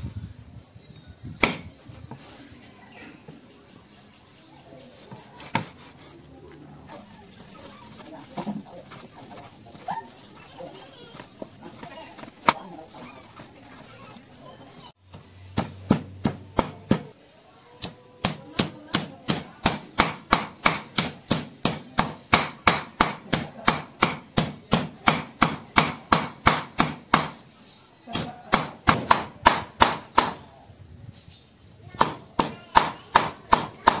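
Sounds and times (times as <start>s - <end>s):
cleaver chopping on wooden board: 1.4s - 1.7s, 15.1s - 17.1s, 17.8s - 27.4s, 28.1s - 30.5s, 32.0s - 34.0s.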